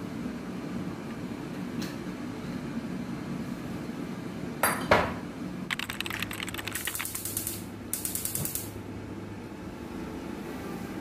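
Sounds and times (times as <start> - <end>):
ratchet-like clicks: 5.7 - 8.7.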